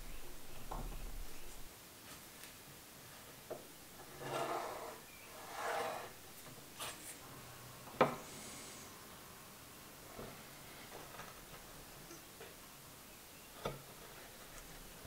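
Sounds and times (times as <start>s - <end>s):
pencil scratching along a rule: 4.0s - 6.2s.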